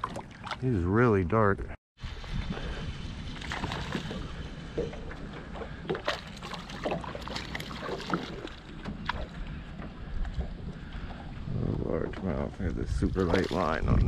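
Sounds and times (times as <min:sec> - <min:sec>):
water lapping against boat: 0:00.0 - 0:00.8, 0:02.0 - 0:14.0
wind on microphone: 0:02.0 - 0:06.1, 0:08.0 - 0:14.0
small splashes and knocks: 0:03.4 - 0:11.1, 0:13.0 - 0:14.0.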